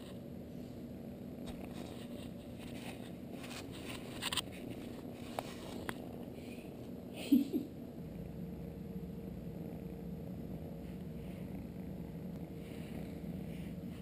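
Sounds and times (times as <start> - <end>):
rubbing and scraping on camera: 1.5 - 6.1.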